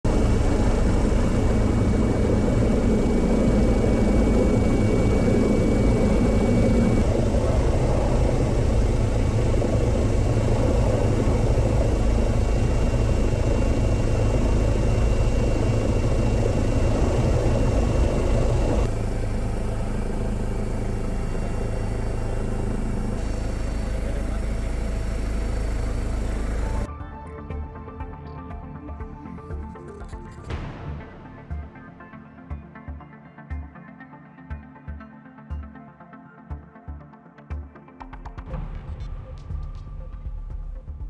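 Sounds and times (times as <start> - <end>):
helicopter engine and rotor drone: 0.0 - 27.0.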